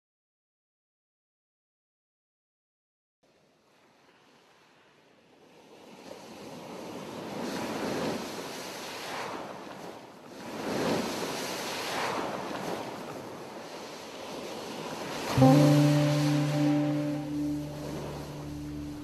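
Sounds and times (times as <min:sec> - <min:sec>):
sea waves breaking on beach: 0:05.4 - 0:19.0.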